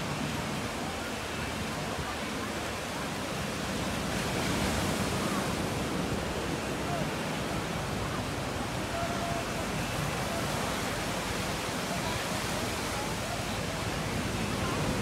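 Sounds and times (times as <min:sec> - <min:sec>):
faint chatter of people: 0:00.0 - 0:15.0
waves breaking on beach: 0:00.0 - 0:15.0.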